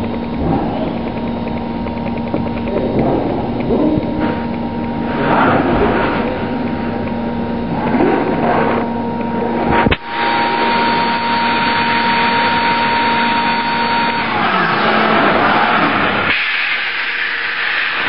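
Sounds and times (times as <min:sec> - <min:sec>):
milling spindle whining: 0:00.0 - 0:16.3
coolant spray hissing: 0:14.3 - 0:18.0.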